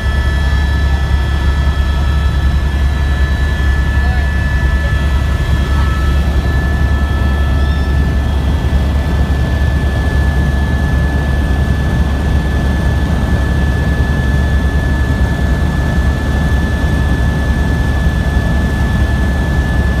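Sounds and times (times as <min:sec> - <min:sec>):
high whine: 0:00.0 - 0:09.8
helicopter rotor and engine drone: 0:00.0 - 0:20.0.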